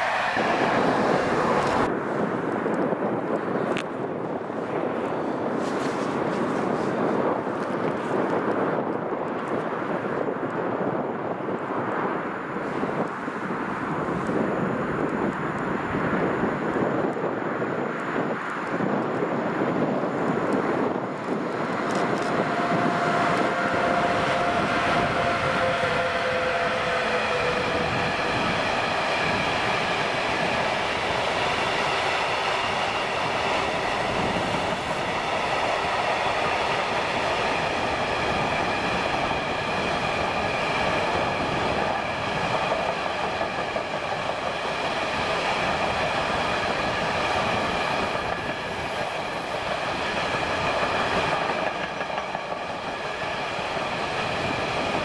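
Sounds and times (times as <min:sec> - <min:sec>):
locomotive whine: 0:00.0 - 0:02.2, 0:14.6 - 0:55.0.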